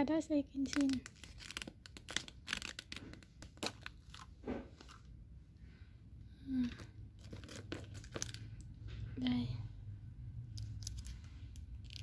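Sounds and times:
plastic cup crinkling: 0.5s - 5.1s, 6.6s - 8.7s, 10.6s - 12.0s.

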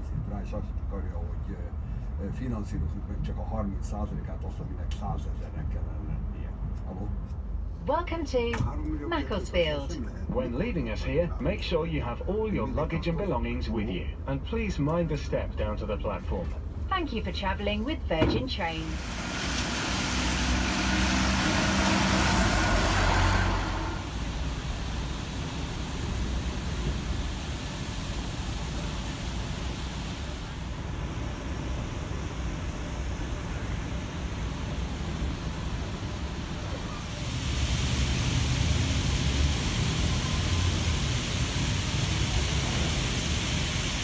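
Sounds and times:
bus engine running: 0.0s - 44.0s
low rumble: 16.6s - 44.0s
fountain jets splashing: 18.5s - 44.0s
even outdoor hiss: 18.6s - 44.0s
tyres hissing on wet road: 18.6s - 44.0s.

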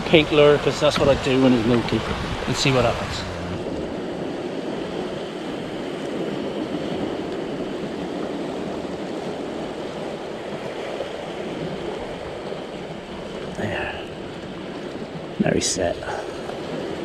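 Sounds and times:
surf washing over rocks: 0.0s - 17.0s.

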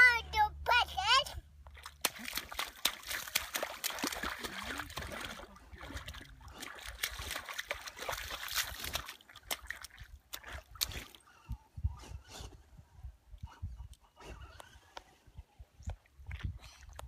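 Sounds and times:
boots splashing through mud: 1.7s - 11.2s
dabbling in water: 1.7s - 11.2s.

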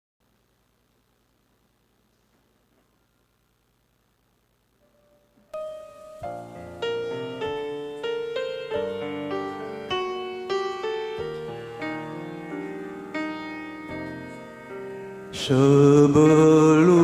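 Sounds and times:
piano chords ringing: 5.0s - 17.0s.

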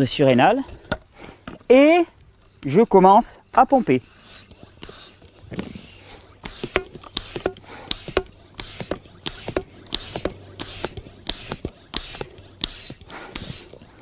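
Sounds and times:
hand pump strokes hissing: 3.2s - 14.0s.

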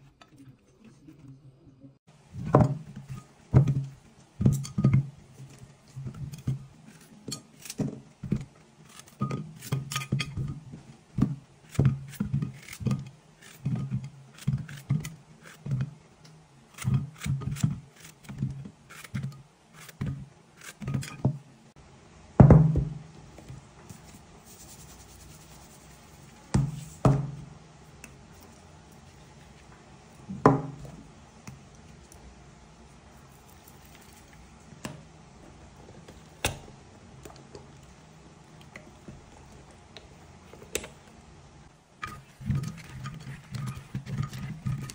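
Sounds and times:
knife cutting vegetables: 11.2s - 15.9s, 16.7s - 21.2s.

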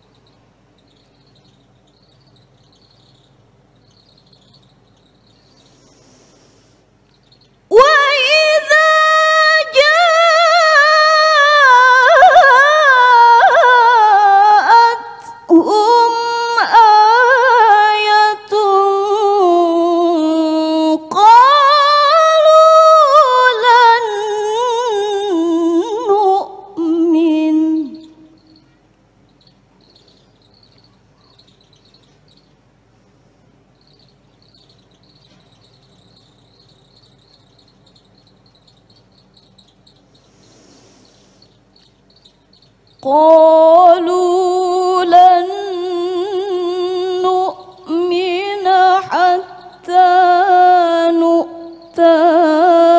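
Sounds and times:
faint cricket chirping: 0.0s - 52.9s
woman reciting melodically: 7.3s - 32.5s, 41.6s - 52.9s.

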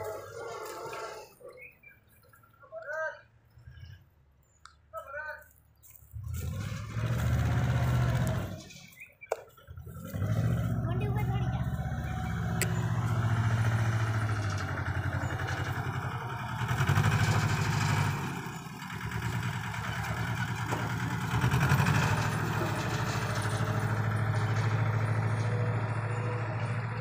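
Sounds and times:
tractor loader engine running: 0.0s - 2.5s, 6.1s - 27.0s.

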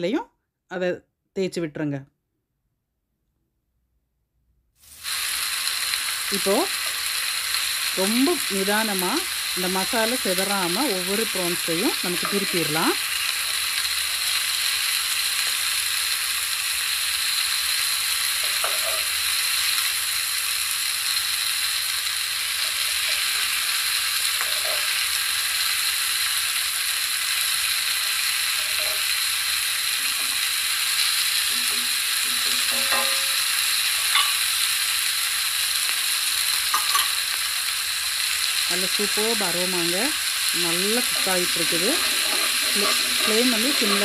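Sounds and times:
prawns sizzling in a pan: 4.8s - 44.0s
spatula scraping and tapping: 28.6s - 29.1s, 31.4s - 33.5s, 41.0s - 44.0s.

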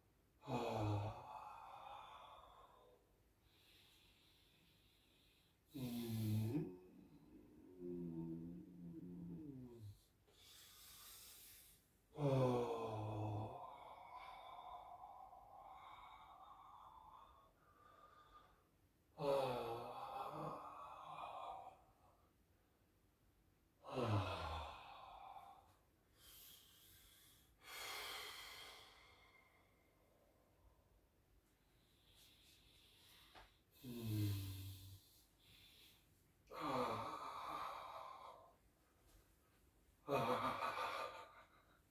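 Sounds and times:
man breathing deeply: 0.4s - 22.1s, 23.9s - 41.9s
man sighing: 33.3s - 35.2s, 40.0s - 41.8s.

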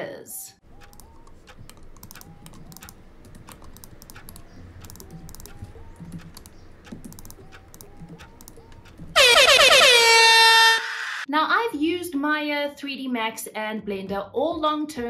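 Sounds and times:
computer keyboard typing: 0.6s - 10.0s.

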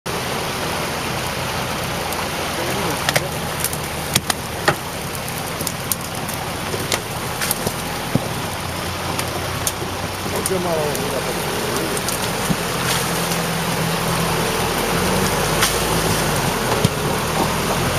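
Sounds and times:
all-terrain vehicle engine running: 0.1s - 17.9s.

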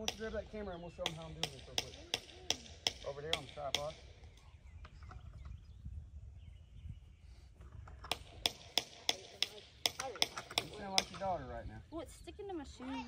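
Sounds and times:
sharp metallic knocks: 1.0s - 4.1s, 8.0s - 11.4s.

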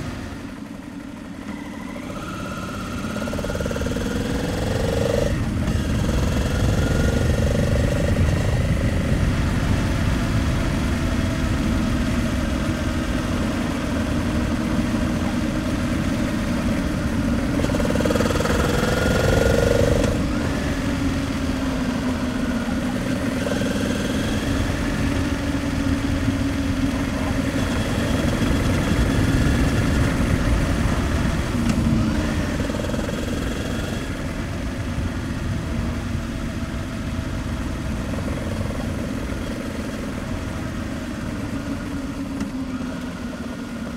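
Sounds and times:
motorcycle engine running: 0.0s - 43.9s
wind and road rumble: 0.0s - 43.9s.

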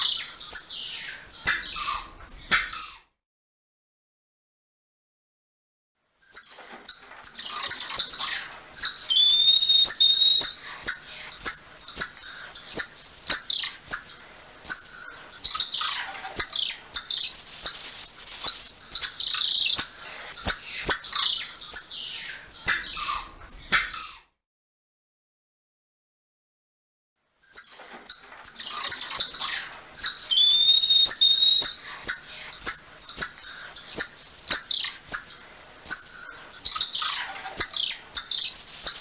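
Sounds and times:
monkey held whistles: 30.3s - 31.7s.

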